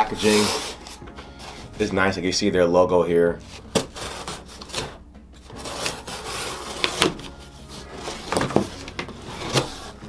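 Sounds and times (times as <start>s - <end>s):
knife slitting packing tape: 5.6s - 7.3s.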